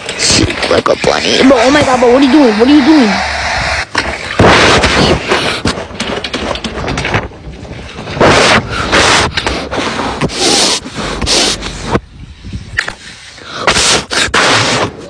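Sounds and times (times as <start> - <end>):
water balloon rubbed by hands: 0.2 - 5.6, 8.2 - 12.0, 13.7 - 15.0.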